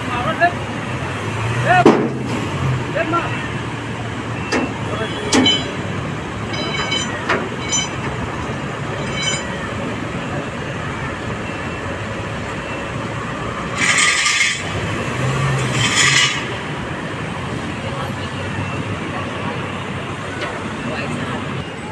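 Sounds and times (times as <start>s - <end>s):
street traffic: 0.0s - 21.9s.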